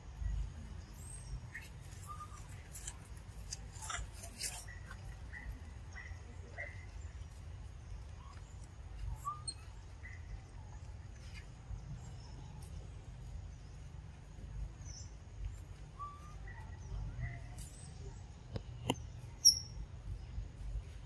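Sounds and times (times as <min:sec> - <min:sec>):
birds chirping: 0:14.6 - 0:20.6.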